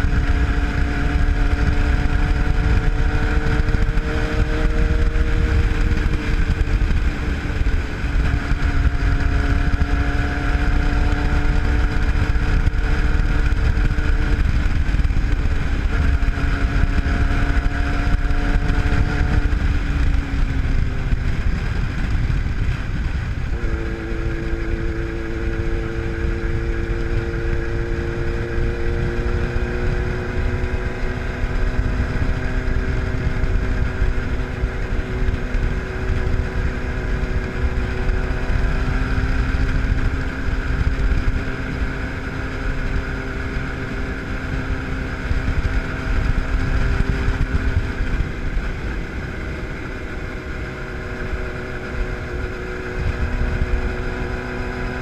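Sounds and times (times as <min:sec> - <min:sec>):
motorcycle engine running: 0:00.0 - 0:55.0
wind on microphone: 0:00.0 - 0:55.0.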